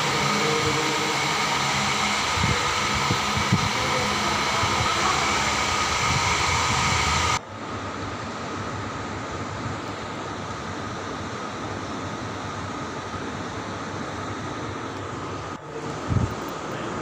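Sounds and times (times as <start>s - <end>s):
dull hiss: 0.0s - 7.4s
whirring hum: 0.0s - 17.0s.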